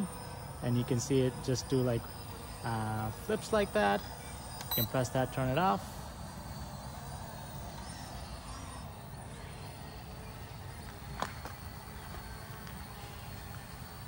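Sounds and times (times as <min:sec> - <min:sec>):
faint high chirps: 0:00.1 - 0:05.1.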